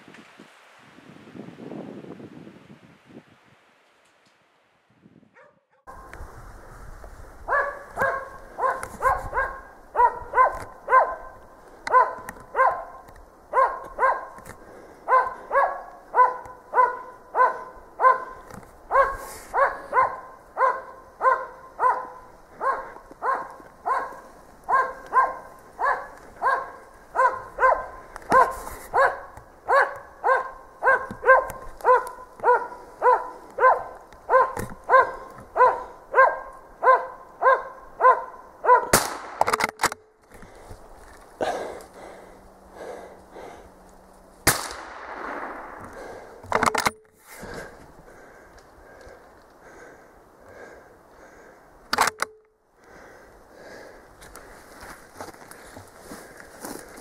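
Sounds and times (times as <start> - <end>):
dog barking: 5.4 - 6.0, 7.5 - 14.4, 15.1 - 39.0
loud sharp bangs: 38.9 - 39.7, 44.5 - 45.9.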